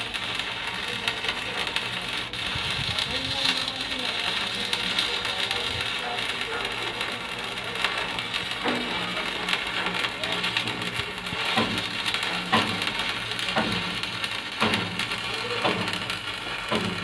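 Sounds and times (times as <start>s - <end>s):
welding arc crackling and sizzling: 0.0s - 17.0s.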